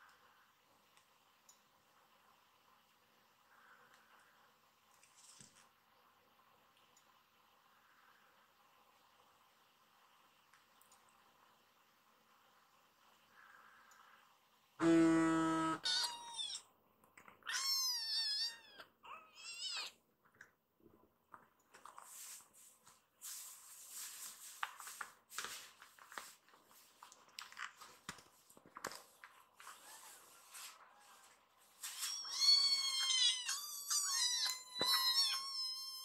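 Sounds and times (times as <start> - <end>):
loud buzzy tone: 14.8 - 15.8
kitten meowing: 17.4 - 20.0, 32.1 - 36.0.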